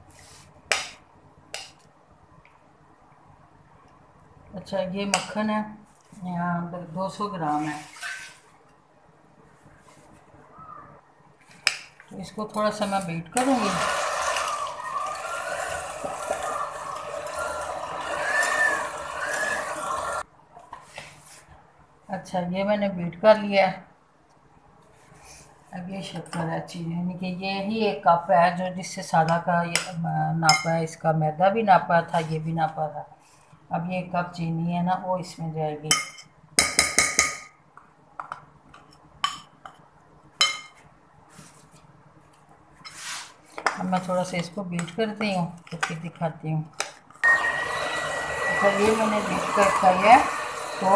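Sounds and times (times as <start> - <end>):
soft scrape: 0.0 - 0.6, 7.5 - 8.6, 42.8 - 43.6
electric hand mixer whine: 13.4 - 20.2, 47.2 - 50.9.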